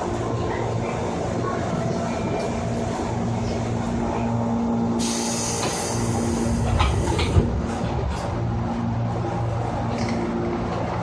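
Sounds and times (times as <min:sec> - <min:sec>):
electric train rumbling: 0:00.0 - 0:11.0
hiss: 0:05.0 - 0:07.2.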